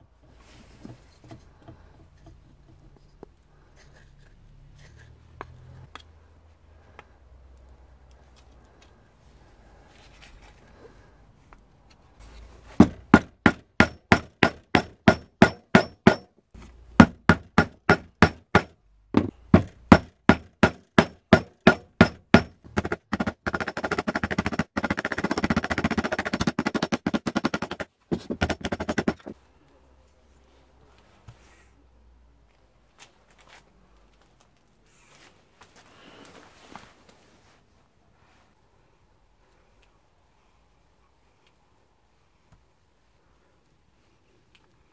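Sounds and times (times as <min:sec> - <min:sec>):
hammer striking wooden pins: 0:12.8 - 0:29.4.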